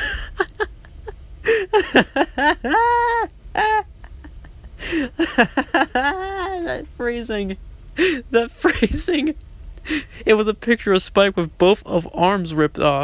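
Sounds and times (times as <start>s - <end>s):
person whining: 0.0s - 0.7s, 1.5s - 4.2s, 4.8s - 6.9s.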